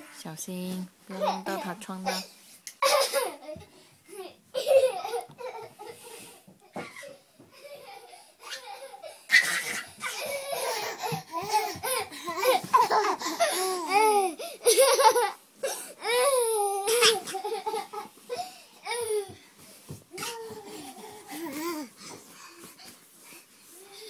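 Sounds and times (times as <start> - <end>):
baby laughing: 2.8 - 6.0, 7.6 - 15.4.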